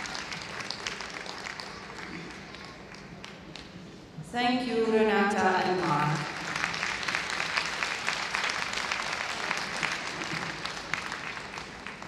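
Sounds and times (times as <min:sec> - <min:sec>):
audience applauding: 0:00.0 - 0:03.7, 0:06.2 - 0:12.0.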